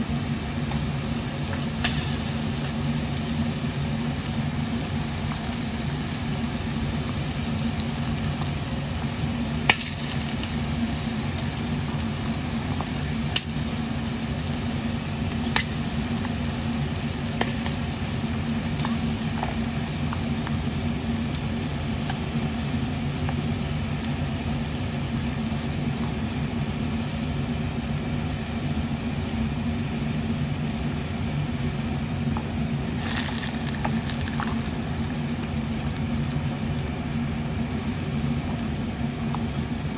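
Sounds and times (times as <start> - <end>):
food deep-frying in hot oil: 0.0 - 39.9.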